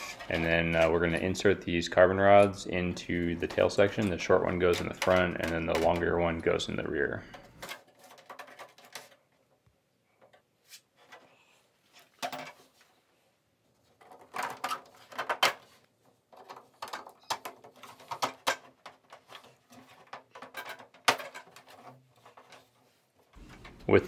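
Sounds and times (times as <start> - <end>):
plastic clicks and knocks: 3.4 - 6.3, 16.3 - 22.6.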